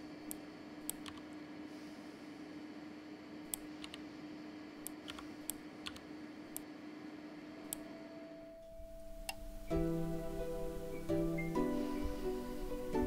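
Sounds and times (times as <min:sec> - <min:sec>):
steady low hum: 0:00.0 - 0:13.0
mouse and keyboard clicks: 0:00.9 - 0:01.3, 0:03.5 - 0:04.0, 0:04.8 - 0:06.0.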